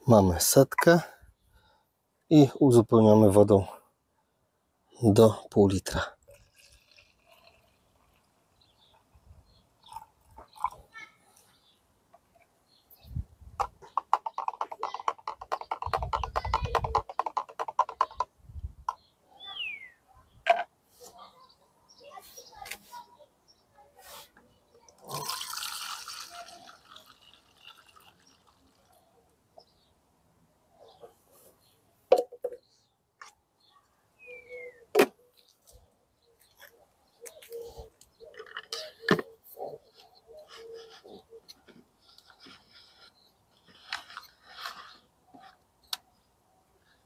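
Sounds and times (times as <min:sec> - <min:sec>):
plastic bottle knocks and clicks: 0:13.6 - 0:19.0, 0:32.1 - 0:32.6.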